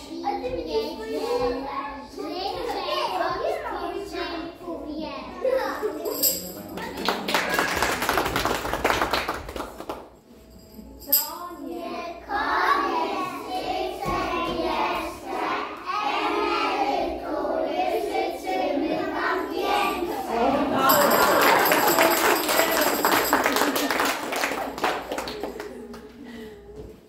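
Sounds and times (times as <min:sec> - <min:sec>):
children singing: 0:11.8 - 0:20.9.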